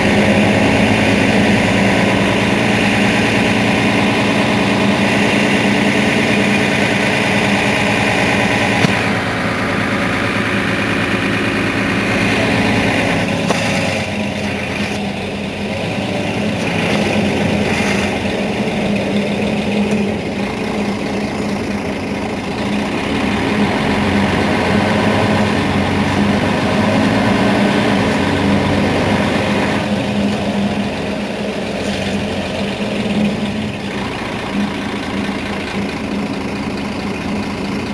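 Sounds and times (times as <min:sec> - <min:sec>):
bus engine idling: 0:00.0 - 0:37.9.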